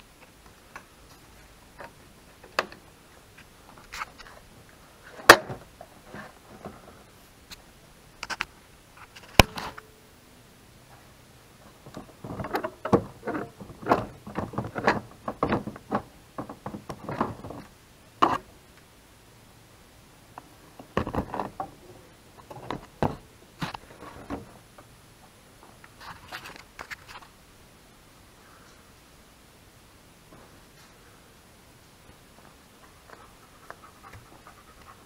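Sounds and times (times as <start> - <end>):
plastic knocks clicks and scrapes: 11.8 - 18.5.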